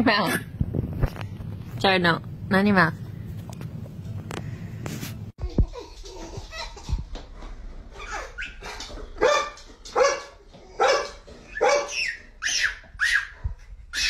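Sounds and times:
dog barking: 0:09.2 - 0:12.6.

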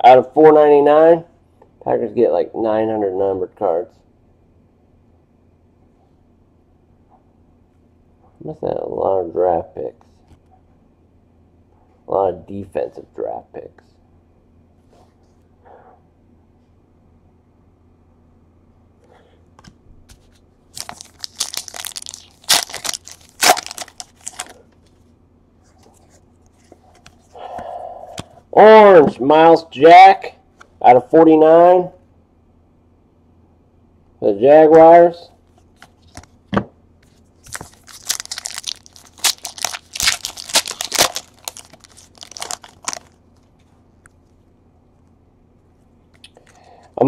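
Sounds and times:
foil wrapper crinkling and tearing: 0:20.7 - 0:24.6, 0:37.4 - 0:43.5.

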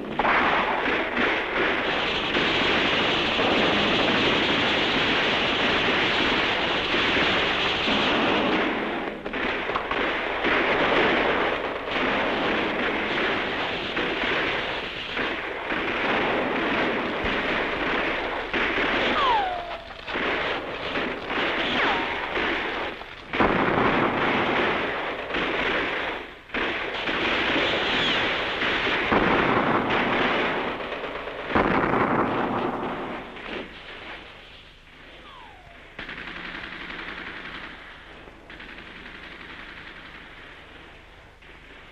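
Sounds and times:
explosions: 0:00.0 - 0:34.4, 0:35.2 - 0:37.9
gunfire: 0:00.0 - 0:41.9
falling whistle: 0:19.2 - 0:20.0.

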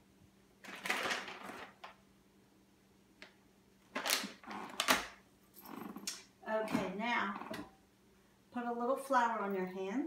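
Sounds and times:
plastic package crinkling: 0:00.6 - 0:02.0, 0:03.9 - 0:05.2.

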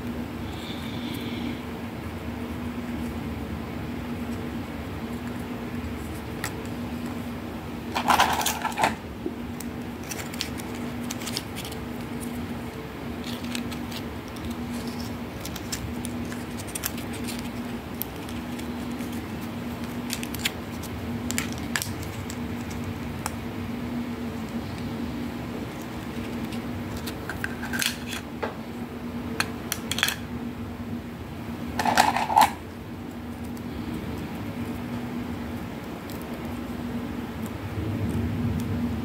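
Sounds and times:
steady low hum: 0:00.0 - 0:39.0
plastic toy pieces clattering: 0:07.9 - 0:09.0, 0:27.0 - 0:28.2, 0:29.8 - 0:30.2, 0:31.8 - 0:32.6.

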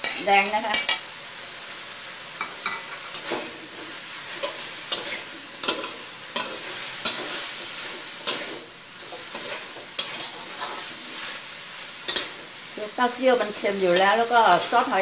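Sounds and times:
sizzle of frying: 0:00.0 - 0:15.0
metal spatula scraping wok: 0:02.4 - 0:15.0.

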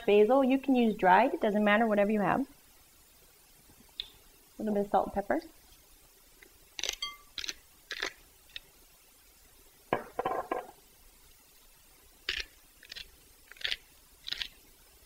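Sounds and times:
spice grinder crunching: 0:06.8 - 0:08.6, 0:12.2 - 0:14.6
clink against glass bowl: 0:07.0 - 0:07.3.

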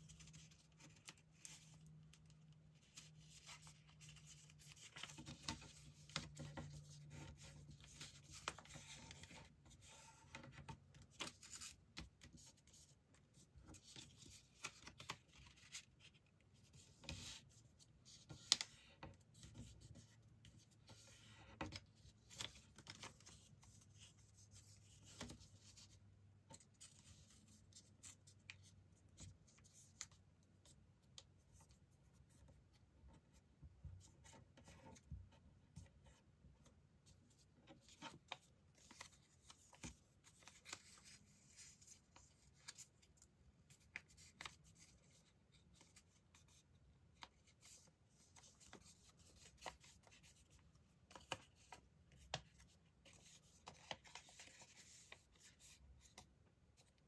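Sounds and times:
paper rustling and crinkling: 0:37.7 - 0:46.6, 0:47.2 - 0:56.9.

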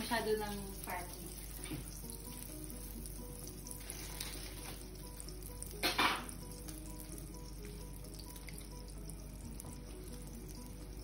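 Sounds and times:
butter sizzling and crackling: 0:00.0 - 0:11.0
bread laid in sizzling butter: 0:00.5 - 0:07.6.

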